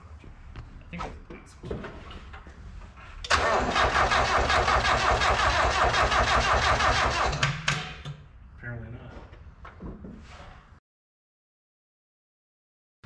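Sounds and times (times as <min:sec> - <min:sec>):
engine cranking by starter: 0:03.2 - 0:08.0.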